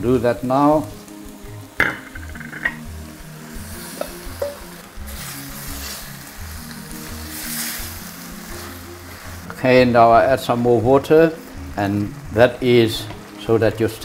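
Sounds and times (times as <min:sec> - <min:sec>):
meat sizzling in a pan: 0:00.0 - 0:14.0
scraping and stirring in a pan: 0:03.5 - 0:09.7.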